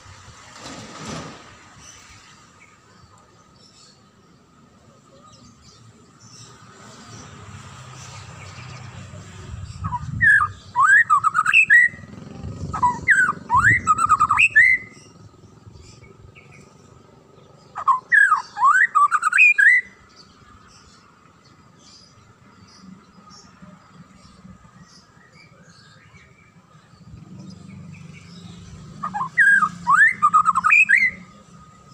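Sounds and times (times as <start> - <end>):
bird singing whistled notes: 9.7 - 16.7, 17.6 - 20.9, 24.2 - 31.9.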